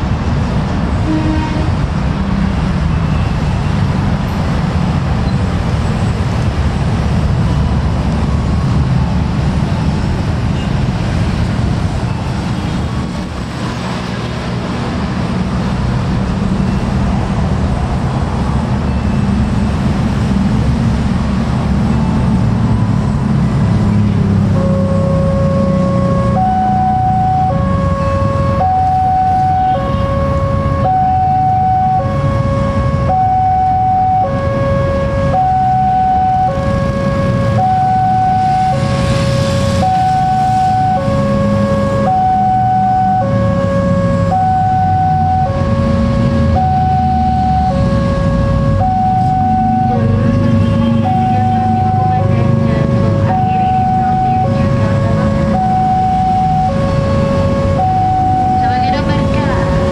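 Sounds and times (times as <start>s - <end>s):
road traffic rumble: 0.0s - 59.9s
level crossing alarm two tones: 24.6s - 38.9s, 39.8s - 59.9s.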